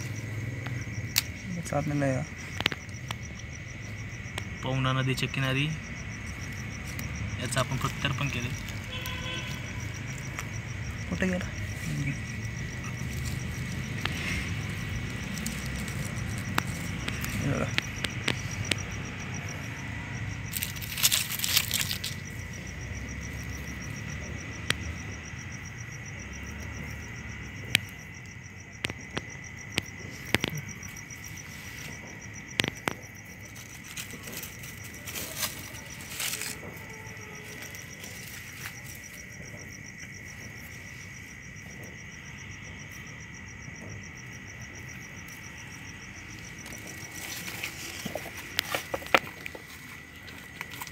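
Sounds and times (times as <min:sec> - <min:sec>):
insect pulsing trill: 0:00.0 - 0:50.9
insect steady high trill: 0:00.0 - 0:50.9
clicks and rustles of leaf litter: 0:11.6 - 0:18.8, 0:20.5 - 0:22.3, 0:32.6 - 0:39.2, 0:46.6 - 0:50.9.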